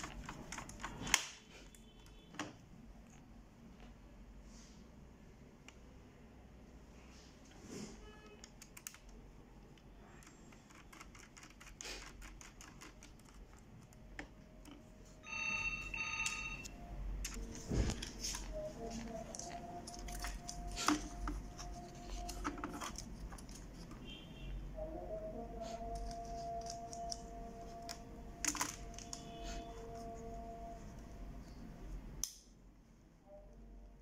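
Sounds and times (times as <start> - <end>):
laptop parts clicking and knocking: 0.0 - 2.6, 17.2 - 24.0, 25.9 - 29.4
faint steady tone: 14.4 - 17.6.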